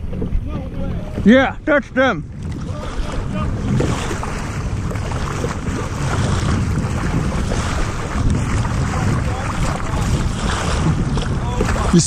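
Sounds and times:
sea water sloshing: 0.0s - 12.0s
wind buffeting microphone: 0.0s - 12.0s.

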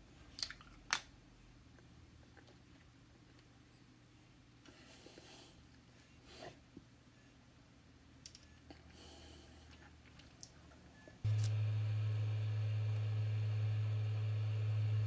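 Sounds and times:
hot air blower humming: 11.3s - 15.0s.

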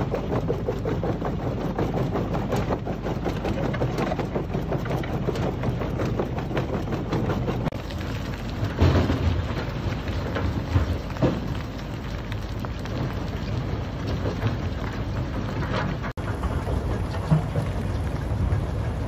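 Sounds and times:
crushed stone pouring: 7.7s - 19.0s.

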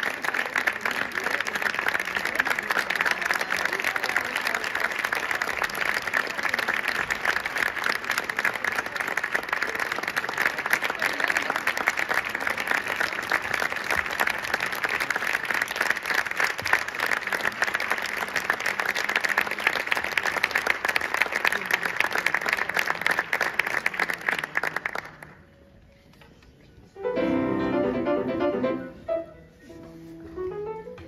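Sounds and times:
audience applauding: 0.0s - 25.4s.

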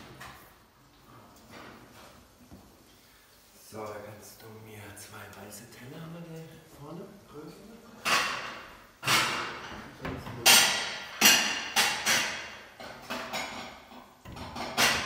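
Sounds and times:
porcelain plates clattering: 8.0s - 15.0s.

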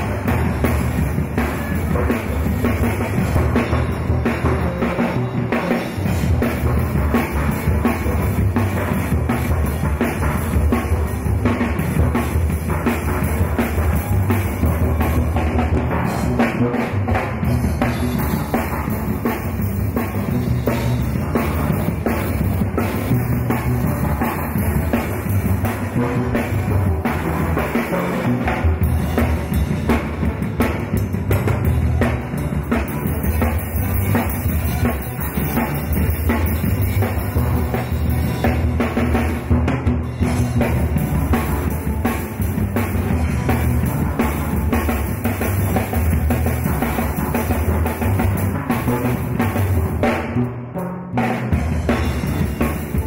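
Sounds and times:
steady drum beat: 0.0s - 53.0s.

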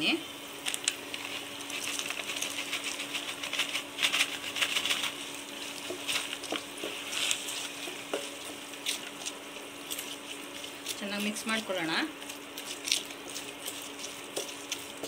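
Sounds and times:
low cooktop hum: 0.0s - 15.0s
spatula stirring and scraping peanuts: 1.2s - 15.0s.

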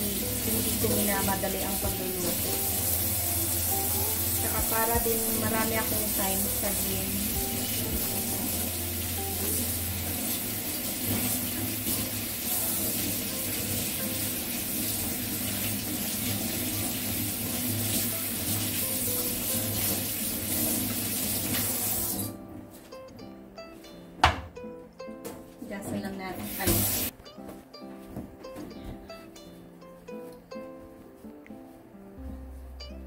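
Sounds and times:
kitchen faucet running: 0.0s - 22.4s, 26.4s - 27.1s.

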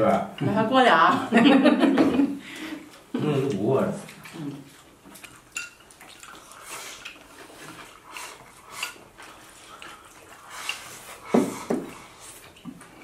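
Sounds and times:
slurping and sipping: 4.0s - 13.0s.

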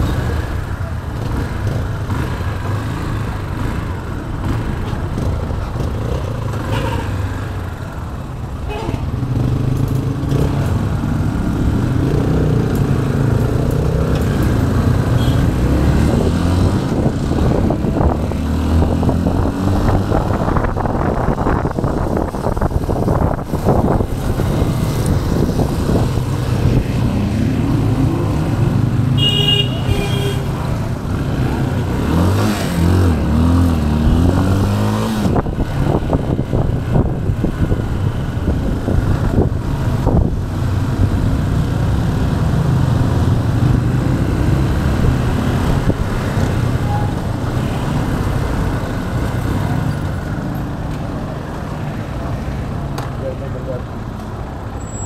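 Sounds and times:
vehicle horn toot: 29.2s - 30.5s.

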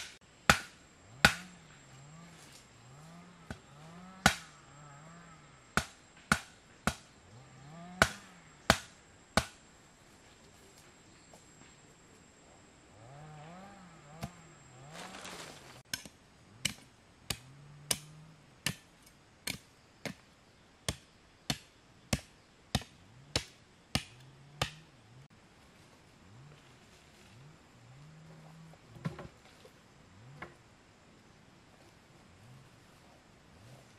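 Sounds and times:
chopping blows on wood: 0.0s - 1.6s, 4.2s - 4.5s, 5.8s - 7.1s, 8.0s - 9.6s, 20.9s - 24.9s.

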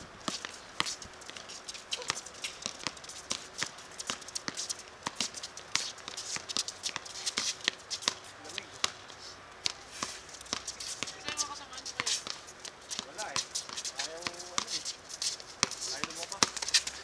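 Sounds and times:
basketball bouncing: 0.2s - 9.0s, 10.4s - 14.7s, 15.6s - 16.9s
footsteps on court: 0.2s - 17.0s.

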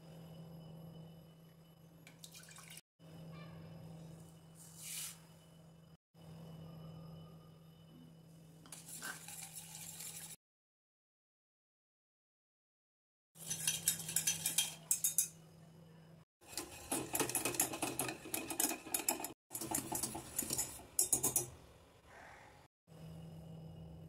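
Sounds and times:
whisk rattling in metal saucepan: 13.4s - 15.3s, 16.4s - 21.6s.

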